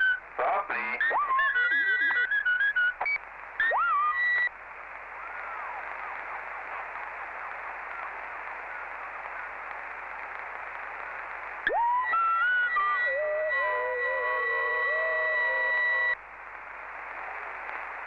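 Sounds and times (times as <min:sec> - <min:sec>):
radio static hiss: 0:00.0 - 0:18.0
wavering radio whistle tones: 0:11.7 - 0:16.2.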